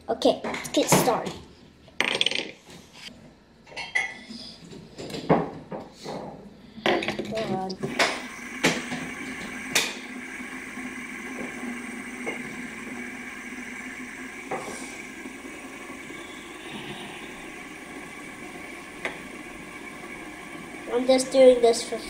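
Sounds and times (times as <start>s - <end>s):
metal fidget spinners whirring: 7.3s - 22.0s.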